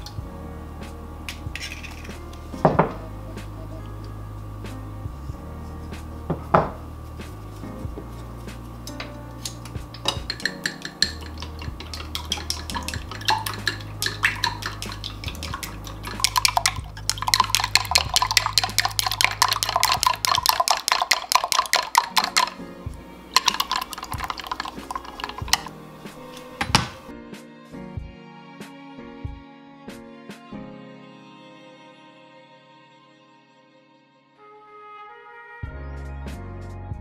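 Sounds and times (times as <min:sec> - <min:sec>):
chopsticks tapping a glass: 0:10.0 - 0:22.6, 0:23.4 - 0:25.7.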